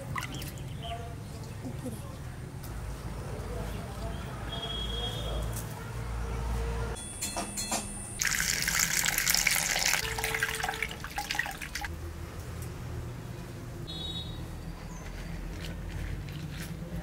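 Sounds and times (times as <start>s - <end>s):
water sloshing and dripping: 0.0s - 0.7s, 8.2s - 11.9s
water pouring into bowl: 8.2s - 11.9s.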